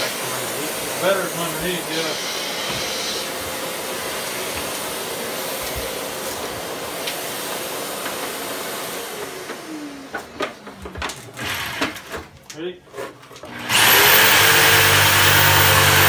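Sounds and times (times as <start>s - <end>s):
electric motor running: 13.5s - 16.0s.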